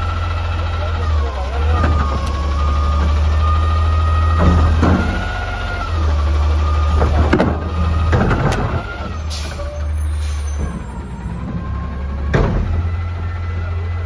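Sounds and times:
garbage truck engine drone: 0:00.0 - 0:14.0
hydraulic whine: 0:01.6 - 0:14.0.

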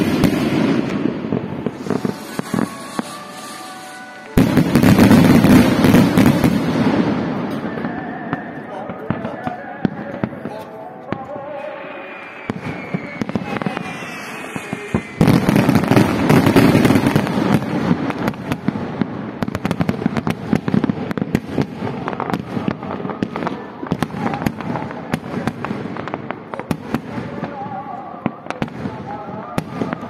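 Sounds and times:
firework burst: 0:00.0 - 0:08.5, 0:09.1 - 0:27.5
firework whistle: 0:00.0 - 0:08.6, 0:11.2 - 0:18.7.

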